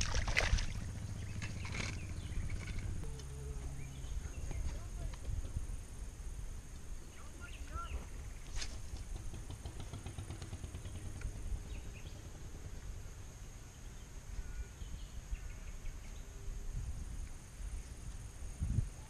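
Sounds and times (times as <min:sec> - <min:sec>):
wind rumble on microphone: 0:00.0 - 0:09.5, 0:13.8 - 0:19.0
insect drone: 0:00.0 - 0:19.0
faint bird chirps: 0:13.7 - 0:16.8.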